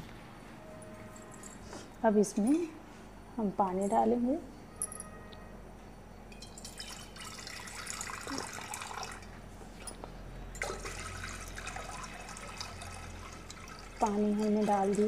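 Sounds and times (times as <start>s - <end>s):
water pouring into a metal pot: 6.6s - 9.3s, 10.6s - 15.0s.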